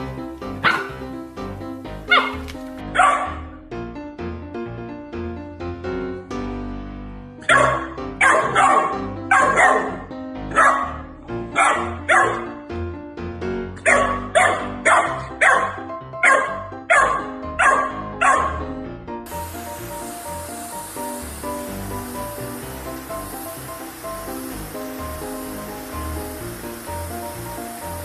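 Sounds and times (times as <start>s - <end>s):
spraying hiss: 0.0s - 2.9s, 19.3s - 28.0s
background music: 0.0s - 28.0s
puppy barking: 0.6s - 1.0s, 2.1s - 3.6s, 7.4s - 12.6s, 13.8s - 18.7s.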